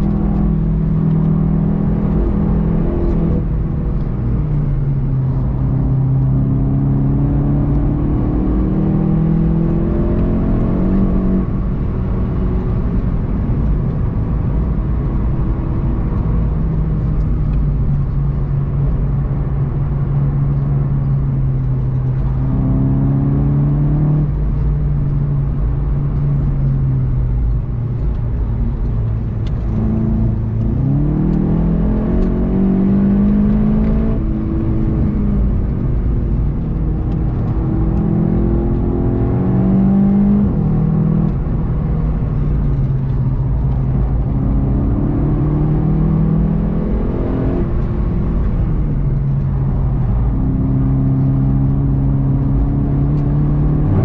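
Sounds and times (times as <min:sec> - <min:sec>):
car engine accelerating: 0:00.0 - 0:54.0
road noise: 0:00.0 - 0:54.0.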